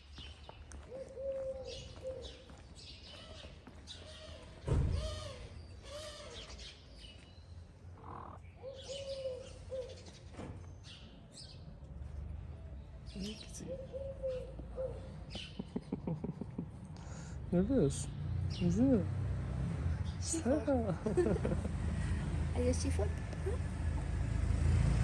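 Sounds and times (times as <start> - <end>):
small birds chirping: 0.0 - 11.8, 12.5 - 16.0
pigeons cooing: 0.9 - 2.4, 8.0 - 10.1, 13.7 - 15.8
thump: 4.6 - 5.1.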